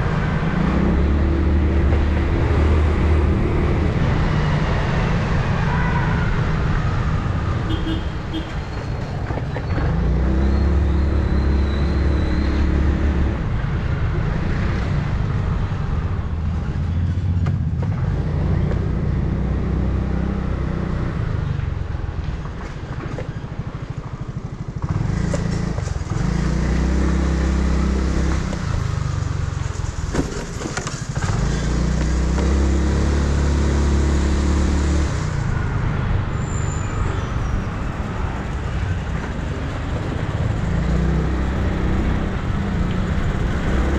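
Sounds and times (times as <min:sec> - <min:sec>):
wind and road noise: 0:00.0 - 0:43.9
motorcycle engine revving: 0:24.0 - 0:36.0, 0:39.1 - 0:43.9.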